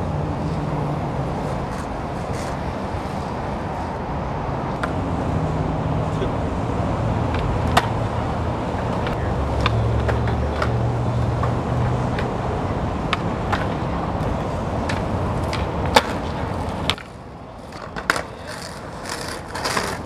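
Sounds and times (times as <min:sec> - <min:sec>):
skateboard wheels rolling on pavement: 0:00.0 - 0:20.0
skateboard clack: 0:01.3 - 0:03.3, 0:07.3 - 0:08.2, 0:08.8 - 0:12.4, 0:13.0 - 0:20.0
skateboard knock: 0:07.3 - 0:08.0.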